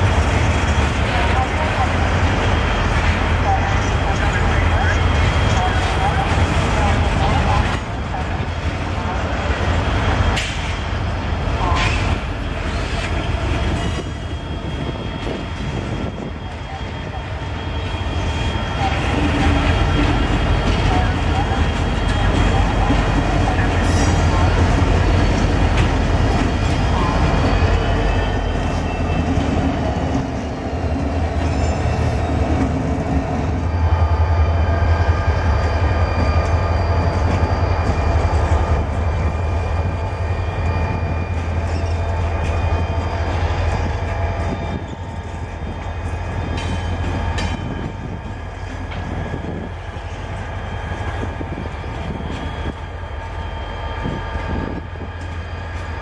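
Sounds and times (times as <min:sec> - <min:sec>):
locomotive engines droning: 0:00.0 - 0:56.0
wheels squealing on rails: 0:00.0 - 0:56.0
wheels clattering on rails: 0:40.5 - 0:52.8.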